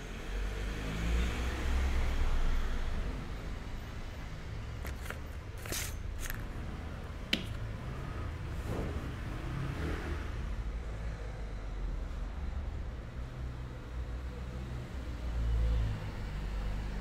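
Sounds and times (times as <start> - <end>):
brush scratching on clay: 4.8 - 6.4
clay slabs rustling on canvas: 4.8 - 6.5.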